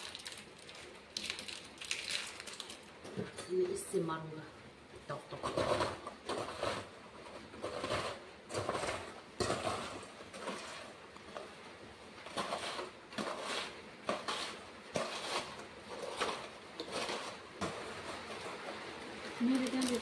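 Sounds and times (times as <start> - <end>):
biscuits crunching: 0.0 - 3.0.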